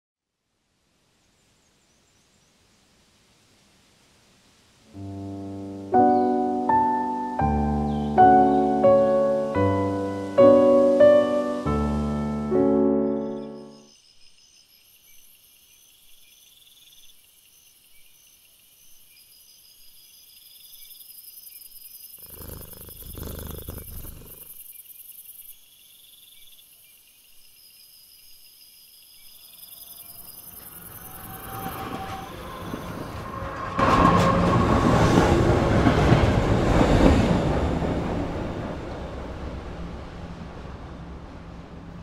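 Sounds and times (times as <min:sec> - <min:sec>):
crickets chirping: 0:13.0 - 0:33.5
rushing noise: 0:30.0 - 0:42.0
train running: 0:30.1 - 0:42.0.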